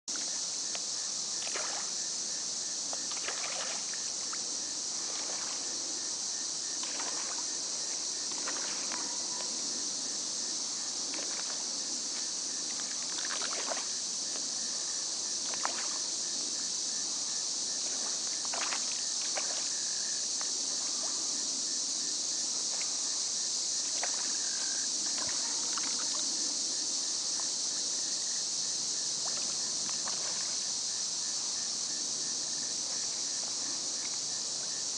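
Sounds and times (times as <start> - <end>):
insect chorus: 0.1 - 34.9
fish splashing at surface: 3.1 - 4.0.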